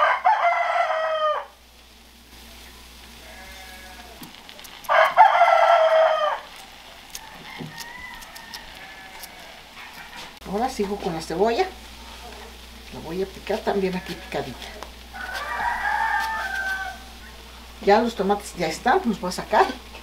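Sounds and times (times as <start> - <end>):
rooster crowing: 0.0 - 1.6, 4.8 - 6.5, 7.1 - 10.4, 15.1 - 17.2.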